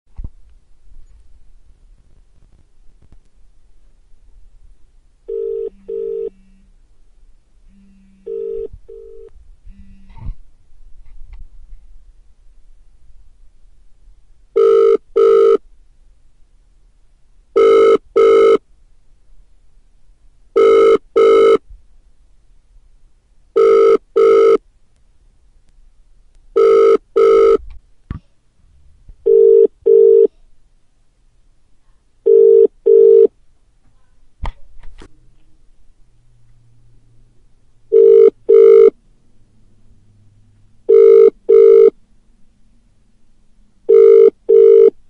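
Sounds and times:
telephone ringing: 5.3s - 6.4s, 8.2s - 9.3s, 14.6s - 15.6s, 17.6s - 18.6s, 20.6s - 21.6s, 23.6s - 24.6s, 26.6s - 27.6s, 29.2s - 30.3s, 32.3s - 33.3s, 37.9s - 38.9s, 40.9s - 41.9s, 43.9s - 44.9s.

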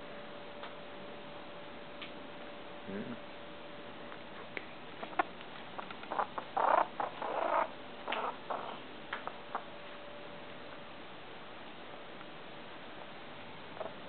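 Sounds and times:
squirrel squeaks: 5.1s - 9.7s.

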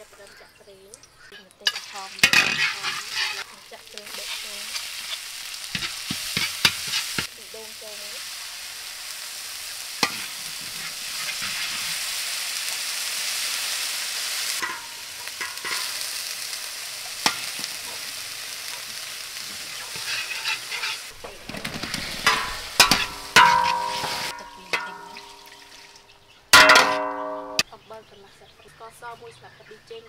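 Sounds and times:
metal ladle clanking on wok: 1.3s - 3.4s, 14.6s - 16.0s, 21.7s - 25.6s, 26.6s - 27.6s
liquid sizzling in hot wok: 1.6s - 26.1s.

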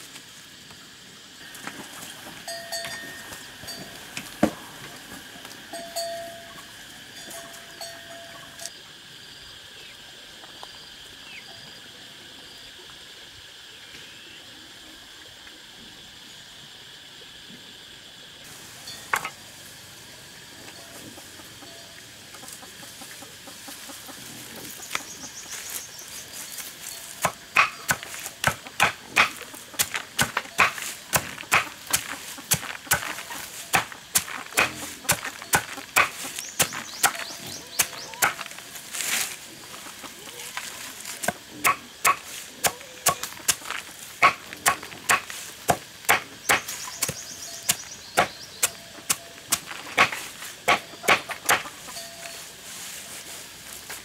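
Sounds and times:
cleaver chopping on wooden board: 27.2s - 38.5s, 44.2s - 48.8s.

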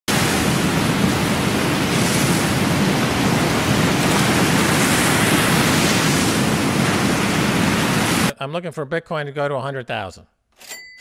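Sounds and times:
ocean surf breaking: 0.1s - 8.3s.

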